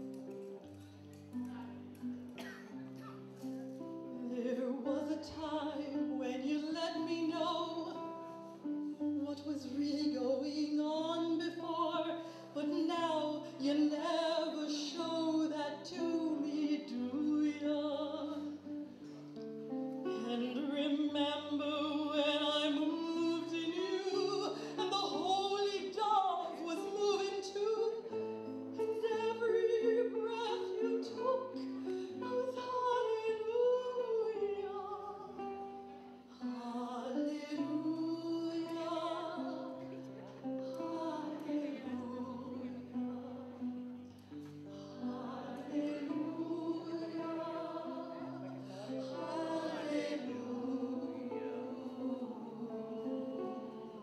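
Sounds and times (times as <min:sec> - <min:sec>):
person singing: 0:20.1 - 0:54.0.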